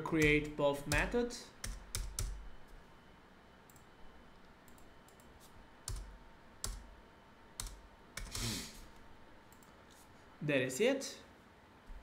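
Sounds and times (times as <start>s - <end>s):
keyboard keys clicking: 0.2s - 2.4s.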